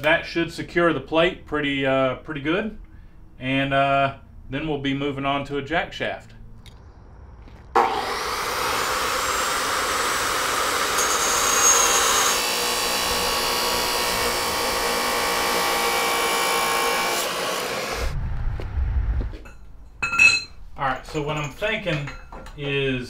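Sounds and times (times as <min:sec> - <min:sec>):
chop saw cutting metal pipe: 0:07.8 - 0:18.1.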